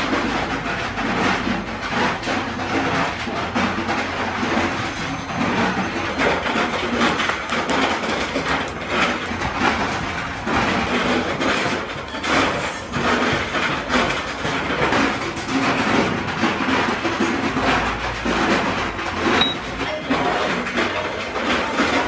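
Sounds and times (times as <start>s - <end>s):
machinery clattering and rumbling: 0.0s - 22.0s.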